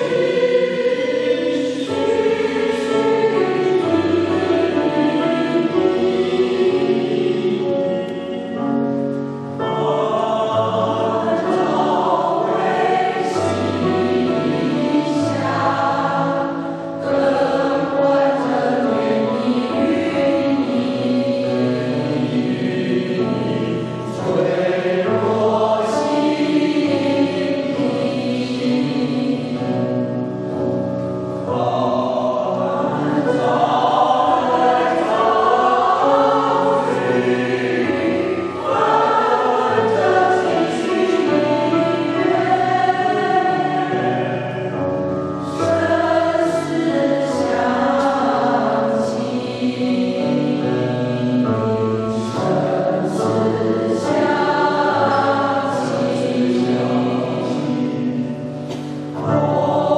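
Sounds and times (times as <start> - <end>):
choir singing a hymn: 0.0 - 59.9
piano accompaniment: 0.0 - 59.9.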